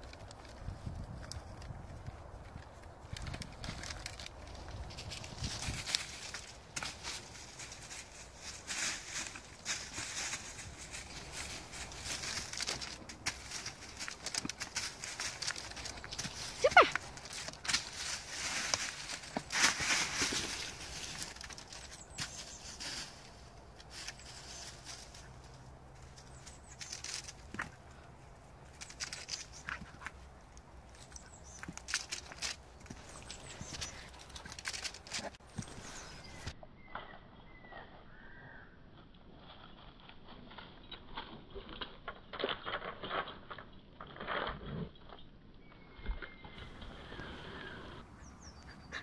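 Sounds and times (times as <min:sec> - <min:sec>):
dry leaves rustling under paws: 0:00.0 - 0:36.5
faint bird chirps: 0:35.6 - 0:38.8, 0:45.6 - 0:49.0.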